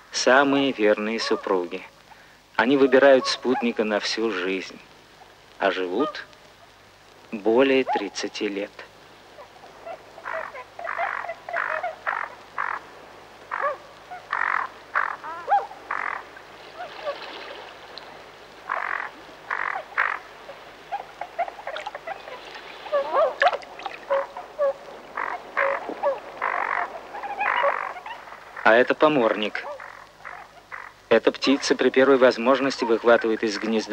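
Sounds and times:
swans honking: 9.4 - 31.8.

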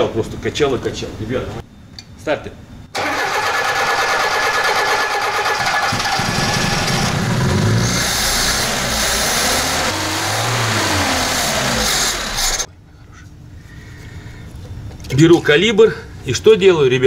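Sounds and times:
car engine cranking on starter: 3.0 - 12.7.

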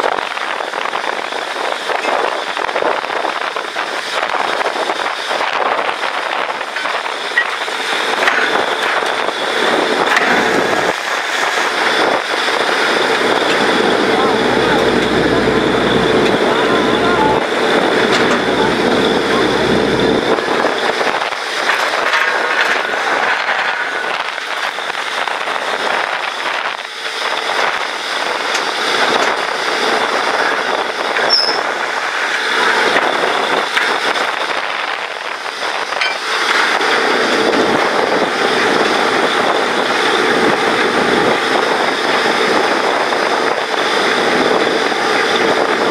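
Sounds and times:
drilling rig din: 3.8 - 45.9.

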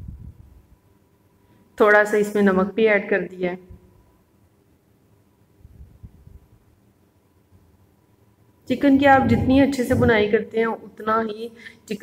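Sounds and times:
soft low thumps: 8.7 - 10.4.

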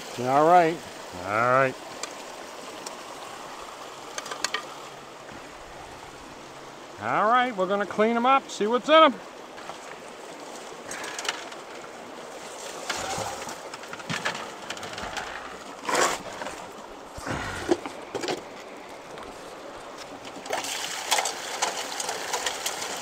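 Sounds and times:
running stream water: 0.0 - 23.0
water rushing through sluice: 0.0 - 23.0
knocks and rattles of sluice: 1.8 - 6.5, 9.3 - 23.0.

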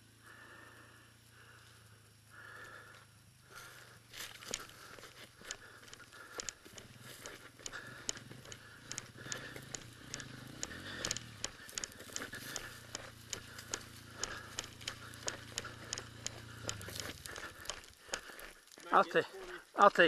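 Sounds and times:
dirt bike engine idling: 0.0 - 20.0
sharp clicks and crackles: 4.2 - 19.8.

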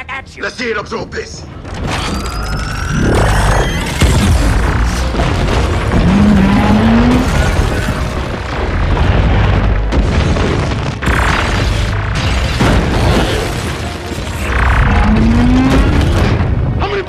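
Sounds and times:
film music: 0.0 - 17.0
heavy booms and crashes: 3.8 - 17.0
low rising tone: 5.8 - 7.8.

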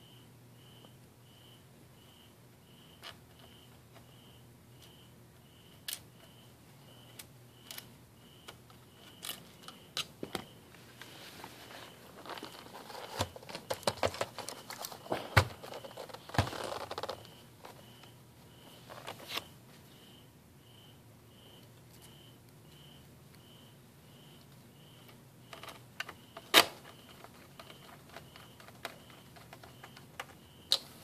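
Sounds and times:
plastic clattering and rustling: 9.0 - 17.8.

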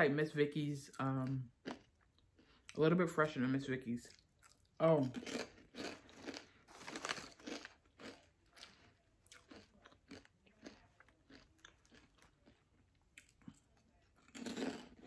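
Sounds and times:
potato chip crunching: 4.0 - 15.0.

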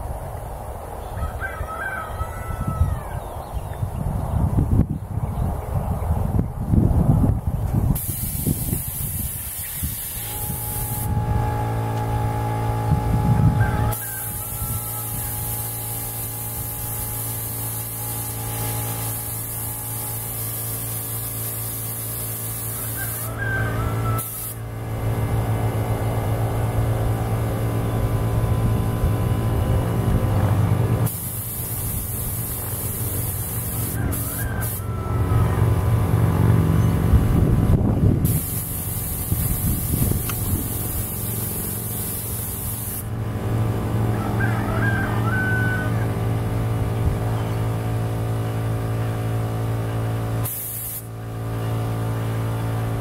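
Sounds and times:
wind rumble on microphone: 0.0 - 17.3, 24.8 - 31.1, 34.0 - 42.4, 43.1 - 47.9
steady multi-tone hum: 2.6 - 53.0
spray gun hissing air: 8.0 - 12.0, 13.9 - 24.7, 31.0 - 34.8, 38.2 - 43.2, 50.4 - 51.1
motor humming: 10.2 - 33.7.

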